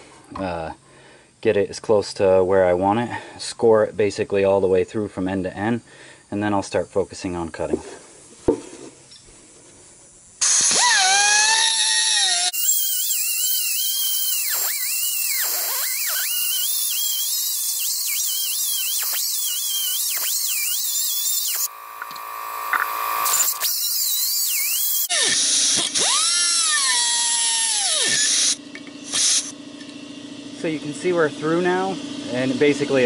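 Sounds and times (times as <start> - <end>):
pneumatic cutoff wheel whining: 10.4 - 30.0.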